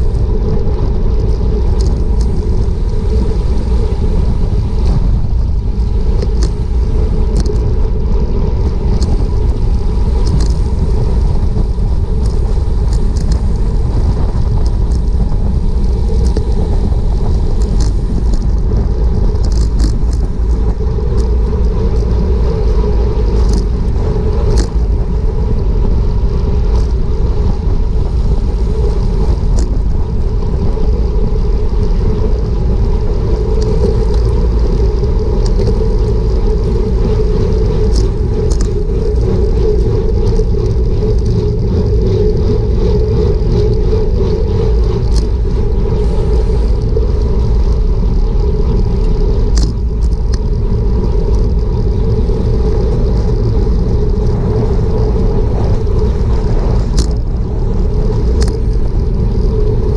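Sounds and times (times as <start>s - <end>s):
road noise: 0.0s - 59.9s
wind rumbling on microphone: 0.0s - 59.9s
faint ticks: 33.4s - 43.8s, 44.9s - 53.6s, 54.2s - 59.8s.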